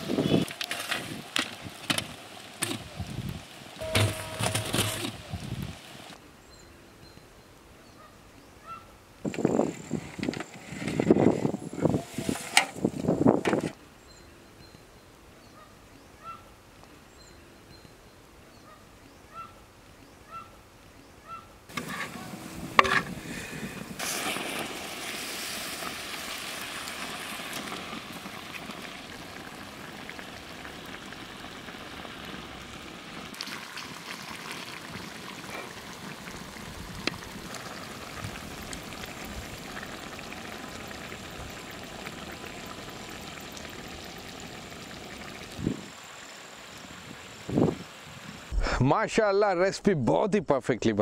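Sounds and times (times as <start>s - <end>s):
pot hissing and crackling over fire: 0.0s - 6.2s, 9.2s - 13.7s, 21.7s - 48.9s.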